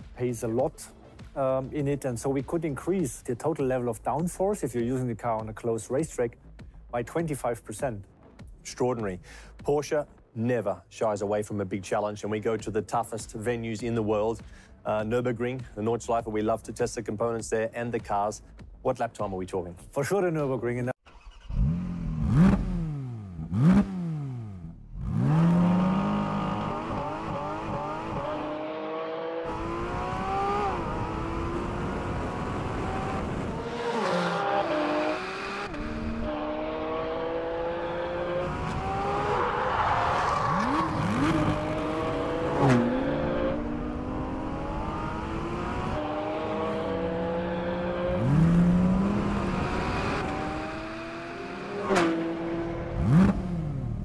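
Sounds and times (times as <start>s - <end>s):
sports car engine revving: 21.4s - 54.0s.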